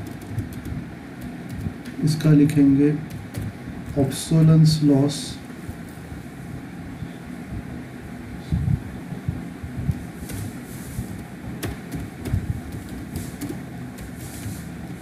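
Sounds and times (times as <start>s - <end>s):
keyboard keys clicking: 0.0s - 2.0s, 3.1s - 3.5s, 11.6s - 14.2s
low background rumble: 0.0s - 15.0s.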